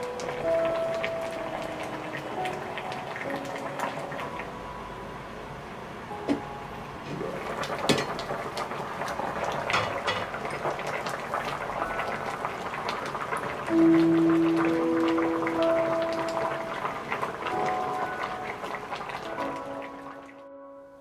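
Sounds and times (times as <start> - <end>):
sauce bubbling and popping: 7.1 - 15.6.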